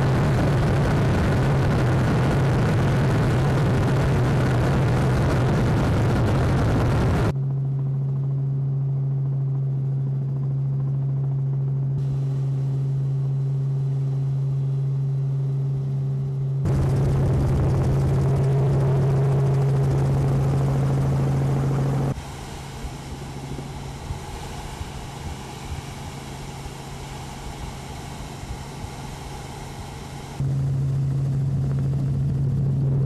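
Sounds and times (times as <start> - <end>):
aircraft engine drone: 0.0 - 33.0
rough rushing noise: 16.6 - 30.6.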